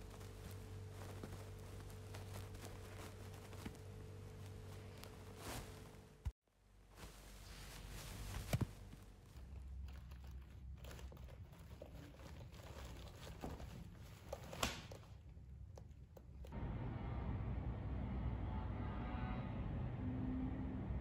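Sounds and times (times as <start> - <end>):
clothing rustling on tiled floor: 0.0 - 15.6.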